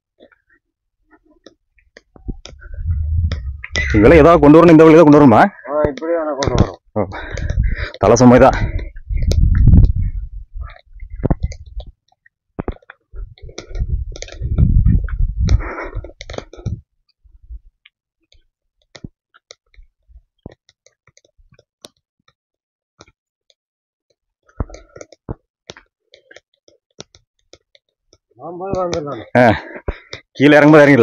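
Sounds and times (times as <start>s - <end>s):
low microphone rumble: 2.2s - 4.5s, 8.8s - 11.8s, 13.2s - 15.6s.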